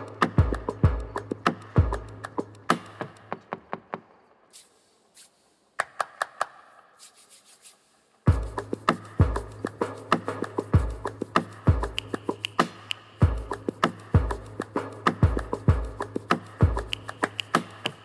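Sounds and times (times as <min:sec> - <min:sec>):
hissing hand rubs: 0:04.5 - 0:05.7, 0:06.8 - 0:18.0.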